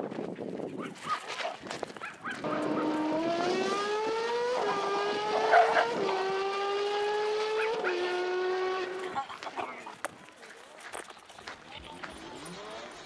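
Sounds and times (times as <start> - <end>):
racing car engine shifting gears: 2.4 - 9.2.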